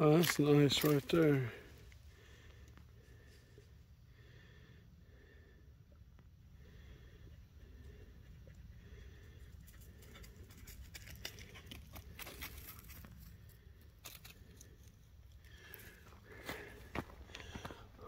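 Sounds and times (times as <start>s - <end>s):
footsteps crunching: 0.0s - 1.9s, 15.5s - 18.0s.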